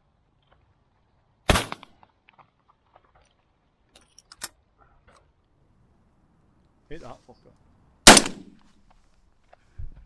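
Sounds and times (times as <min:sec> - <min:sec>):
shotgun shot: 0:01.5 - 0:01.9, 0:08.1 - 0:08.6.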